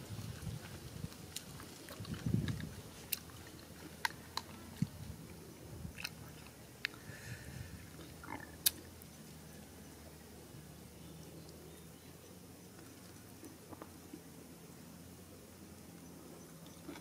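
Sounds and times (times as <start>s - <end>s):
chewing and biting: 0.2s - 5.0s, 16.6s - 17.0s.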